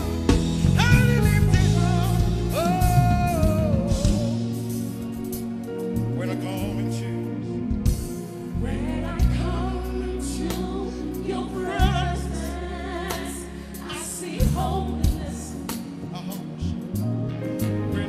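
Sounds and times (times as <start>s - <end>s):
sustained bass notes: 0.0s - 13.1s
voices singing with vibrato: 8.4s - 16.8s.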